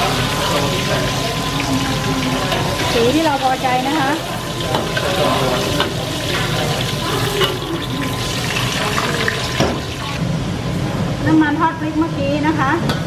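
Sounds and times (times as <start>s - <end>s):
oil bubbling and sizzling: 0.0s - 10.3s.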